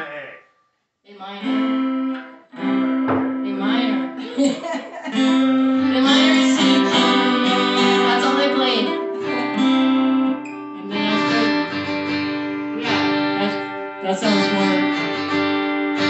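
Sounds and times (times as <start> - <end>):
acoustic guitars strummed: 1.4 - 16.0
woman singing into microphone: 3.4 - 9.8, 10.8 - 11.7, 12.8 - 15.1.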